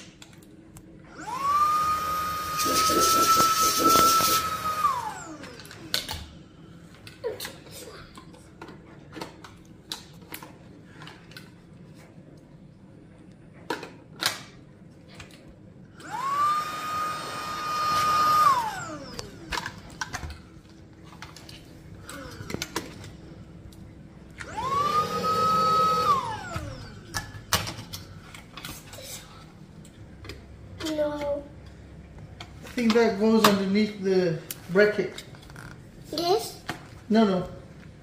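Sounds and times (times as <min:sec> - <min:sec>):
vacuum motor whining: 0:01.1 - 0:06.2, 0:16.0 - 0:20.4, 0:21.9 - 0:23.2, 0:24.3 - 0:27.6.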